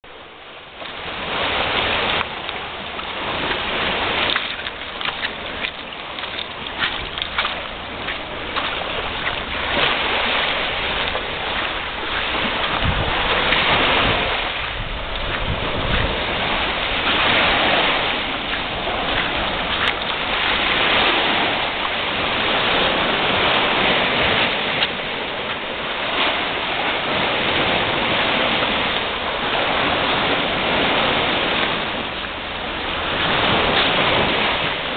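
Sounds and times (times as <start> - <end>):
waves breaking on shore: 0.0 - 34.9
wind buffeting microphone: 0.9 - 34.9.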